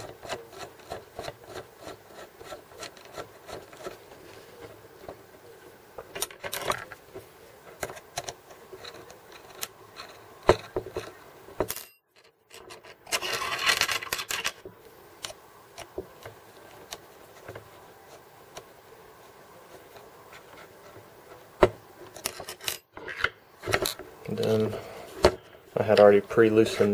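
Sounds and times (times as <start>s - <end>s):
small metal clicks and scraping: 0.0s - 4.0s, 6.0s - 14.6s, 22.0s - 26.9s.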